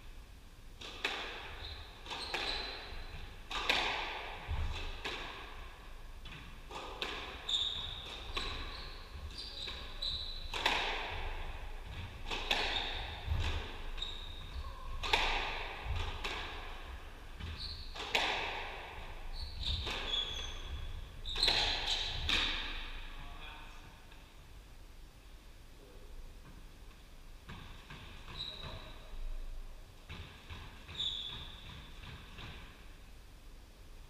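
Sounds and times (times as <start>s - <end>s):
shoes squeaking on wooden floor: 1.6s - 3.2s, 7.4s - 15.1s, 15.8s - 18.1s, 19.2s - 22.7s, 28.2s - 29.1s, 30.8s - 31.9s
squash ball cracking off rackets: 3.5s - 5.4s, 6.3s - 7.4s, 10.5s - 14.0s, 15.0s - 19.0s.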